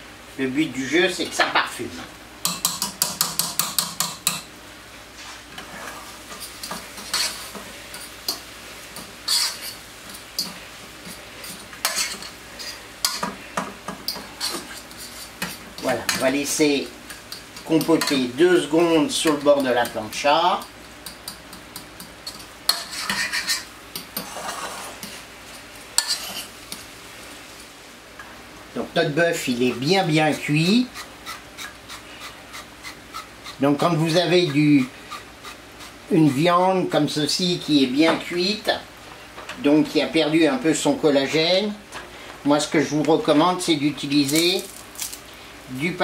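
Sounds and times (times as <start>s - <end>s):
metal utensils scraping in pot: 5.5s - 8.4s, 9.0s - 16.3s, 22.2s - 26.8s.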